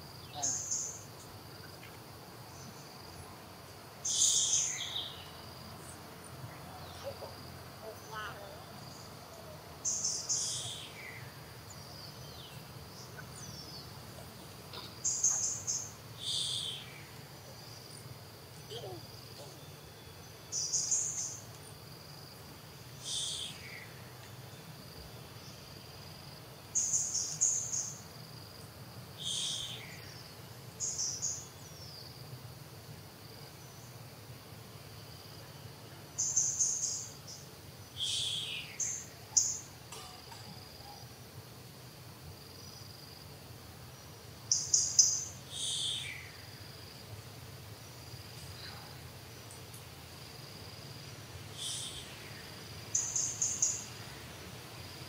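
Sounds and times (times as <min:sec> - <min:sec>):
high insect drone: 0:00.0 - 0:55.0
bird calling: 0:04.0 - 0:05.3, 0:06.7 - 0:11.3, 0:12.3 - 0:17.6, 0:23.0 - 0:23.9, 0:29.2 - 0:30.1, 0:51.5 - 0:52.4.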